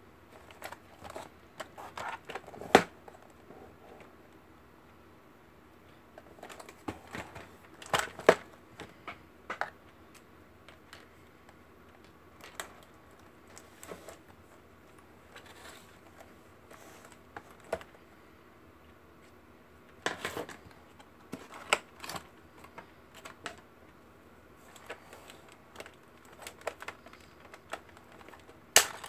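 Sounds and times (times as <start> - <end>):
packaging clicks and crinkles: 24.6 - 29.0.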